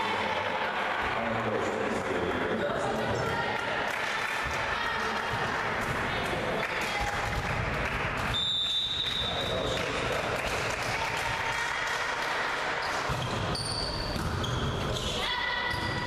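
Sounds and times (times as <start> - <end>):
players' voices: 0.0 - 8.4.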